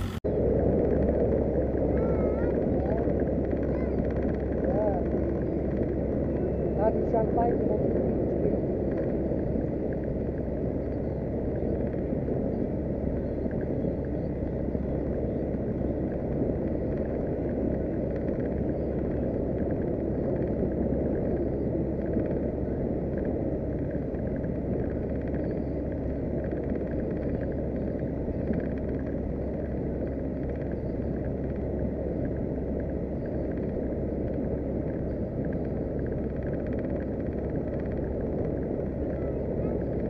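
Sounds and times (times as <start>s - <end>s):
outboard motor running: 0.0s - 40.0s.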